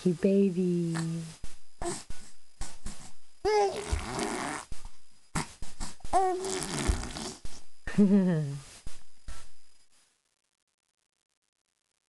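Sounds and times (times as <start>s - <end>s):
baby high vocal sound: 3.5s - 4.4s
baby blowing wet raspberries: 3.6s - 4.7s, 5.8s - 7.5s.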